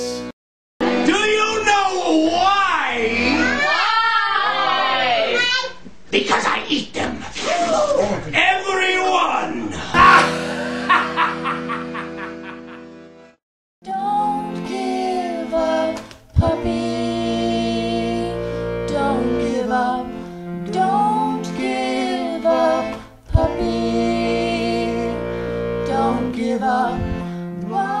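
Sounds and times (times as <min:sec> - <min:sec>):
accordion chords: 0:00.0 - 0:02.0, 0:02.8 - 0:03.8, 0:10.0 - 0:28.0.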